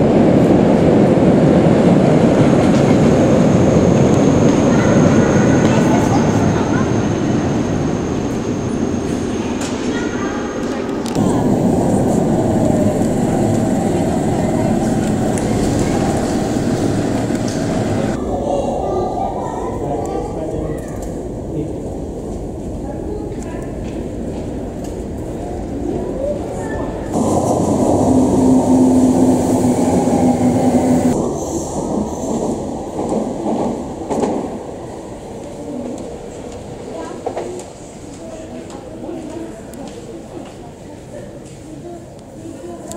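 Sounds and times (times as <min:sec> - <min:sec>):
underground train rumbling: 0:00.0 - 0:42.8
low motor hum: 0:11.1 - 0:18.2.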